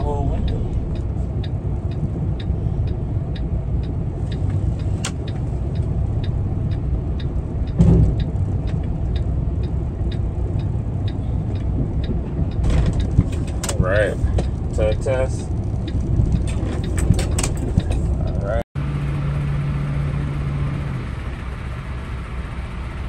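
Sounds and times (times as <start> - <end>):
steady ticking: 0.0 - 18.6
diesel engine running: 0.0 - 23.0
heavy thump: 7.8 - 8.2.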